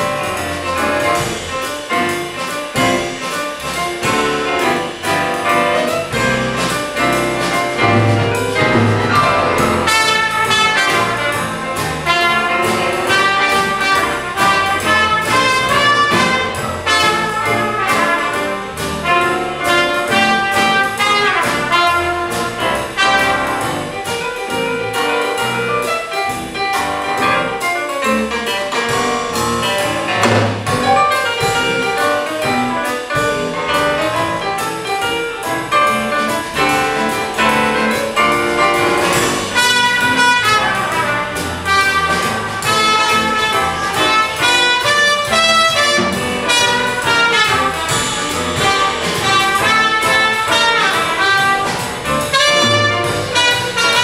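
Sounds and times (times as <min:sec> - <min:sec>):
brass band playing: 0:00.0 - 0:54.0
lead trumpet: 0:02.4 - 0:24.0, 0:36.1 - 0:54.0.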